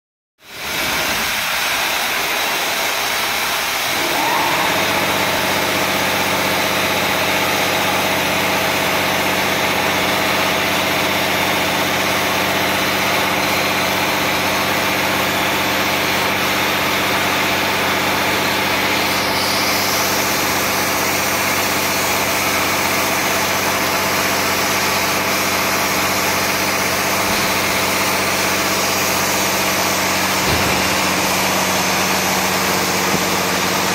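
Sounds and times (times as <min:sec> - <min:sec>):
machine hum: 0:03.3 - 0:10.0, 0:25.7 - 0:33.9.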